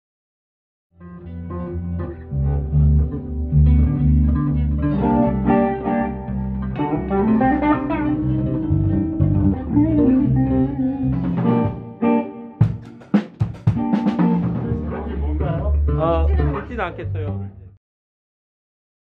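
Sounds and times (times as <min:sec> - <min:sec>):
electric guitar melody: 0:01.0 - 0:17.7
electric bass line: 0:01.0 - 0:17.8.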